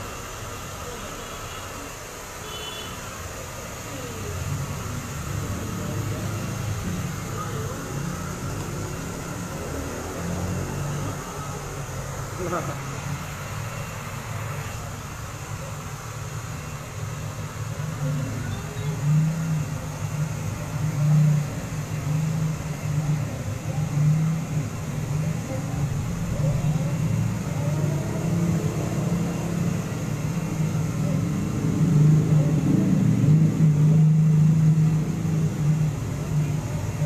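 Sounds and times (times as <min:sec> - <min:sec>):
hair dryer running: 0:03.7 - 0:18.4.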